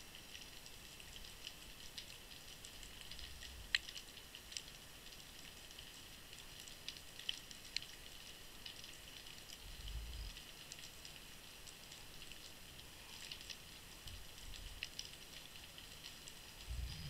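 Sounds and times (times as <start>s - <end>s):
sharp clicks and crackles: 0.1s - 17.0s
faint underwater hiss: 16.3s - 17.0s.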